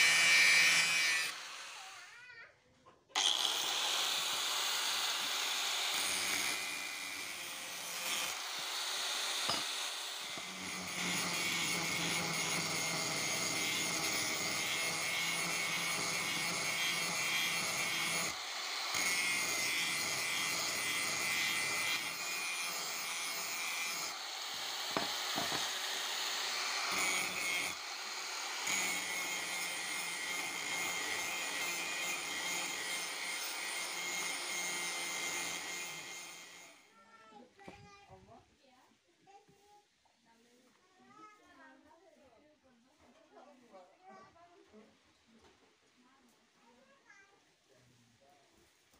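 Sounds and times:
angle grinder grinding steel: 0.0s - 2.2s, 3.2s - 36.8s.

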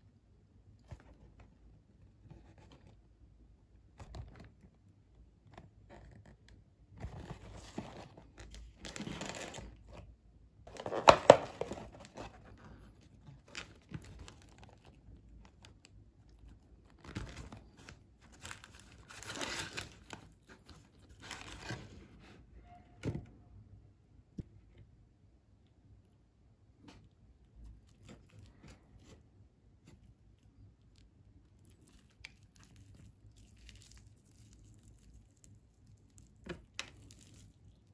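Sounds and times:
cardboard box opened: 7.0s - 10.1s, 10.7s - 14.9s, 17.0s - 22.4s
paper wrappers rustling: 10.7s - 15.5s, 16.9s - 22.3s.

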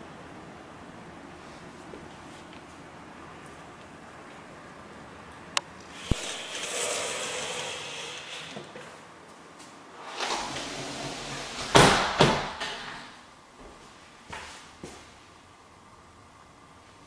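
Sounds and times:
sliding door rolling: 5.9s - 9.0s, 10.0s - 13.1s.

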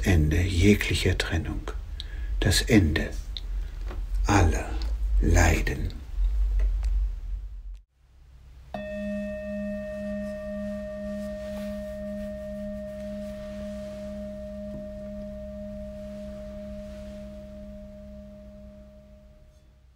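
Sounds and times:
low background hum: 0.0s - 19.9s
singing bowl ringing: 8.7s - 19.9s.

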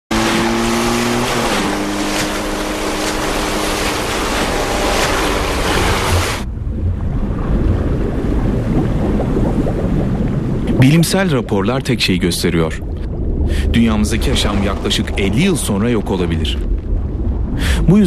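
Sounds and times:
motorboat engine running: 0.1s - 10.6s
spray and waves rushing: 0.1s - 11.5s, 12.4s - 18.0s
muffled underwater rumble: 1.5s - 18.0s.

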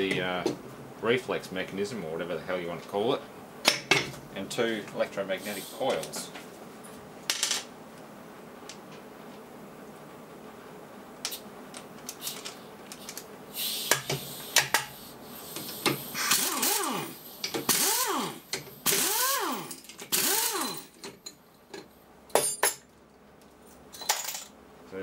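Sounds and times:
air impact wrench bursts: 12.2s - 21.0s.

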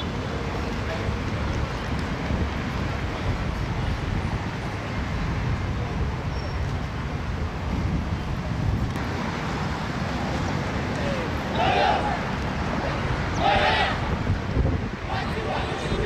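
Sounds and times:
outdoor background noise: 0.0s - 16.0s
faint voices: 10.2s - 16.0s.

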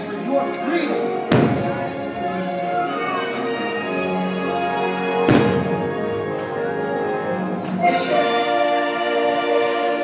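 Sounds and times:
orchestral music: 0.0s - 10.0s
firework bang: 1.3s - 1.8s, 5.3s - 5.8s.

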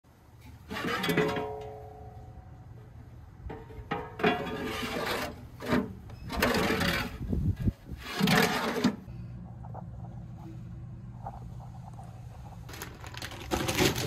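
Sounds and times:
metal parts scraping and rattling: 3.5s - 9.1s.

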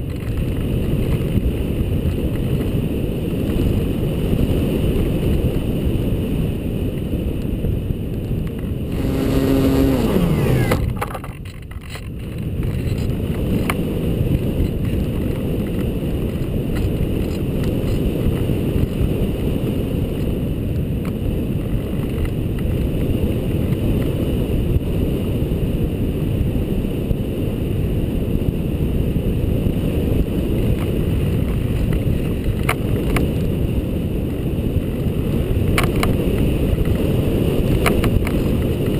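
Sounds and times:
wind buffeting camera: 0.0s - 38.9s
electric motor whining: 8.9s - 11.1s.

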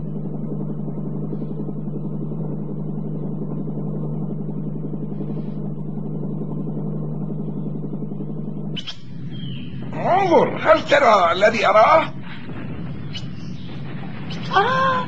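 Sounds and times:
cartoon aircraft engine drone: 0.0s - 15.0s.

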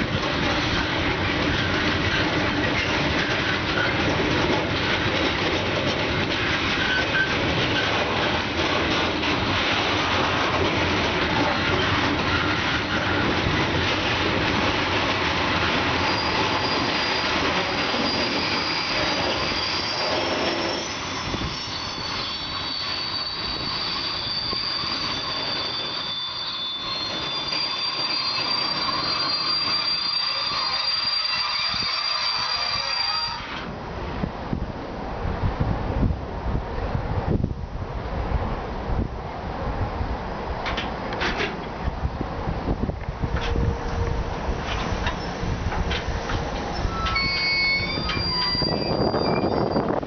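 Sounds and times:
freight train wheels rumbling: 0.0s - 50.0s
high thin wheel squeal: 6.4s - 8.0s, 16.0s - 33.7s, 43.3s - 50.0s.

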